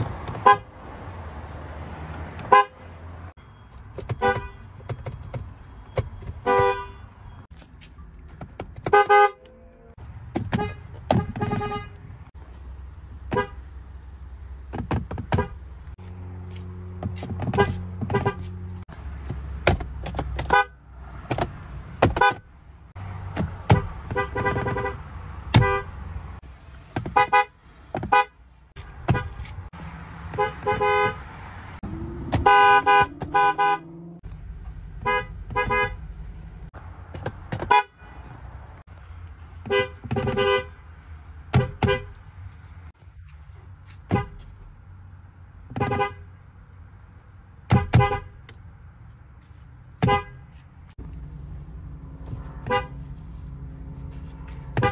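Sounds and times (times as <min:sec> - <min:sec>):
truck horns honking: 0:00.3 - 0:00.8, 0:02.4 - 0:03.3, 0:04.1 - 0:04.8, 0:06.4 - 0:07.4, 0:08.8 - 0:12.3, 0:13.3 - 0:13.7, 0:17.1 - 0:18.8, 0:20.4 - 0:20.9, 0:23.6 - 0:26.4, 0:27.0 - 0:34.2, 0:35.0 - 0:36.2, 0:37.6 - 0:38.4, 0:39.6 - 0:42.2, 0:44.1 - 0:44.6, 0:45.7 - 0:46.4, 0:47.6 - 0:48.5, 0:49.9 - 0:50.6, 0:52.4 - 0:53.2, 0:54.3 - 0:54.9.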